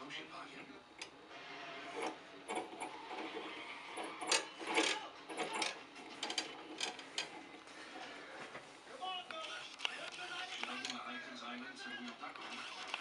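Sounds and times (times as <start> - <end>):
steel ball rolling on rods: 1.9 - 7.7.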